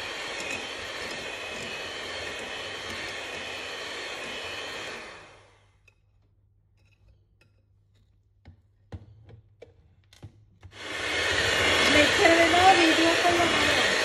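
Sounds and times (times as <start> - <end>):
electric hand mixer running: 0.0 - 5.8, 10.6 - 14.0.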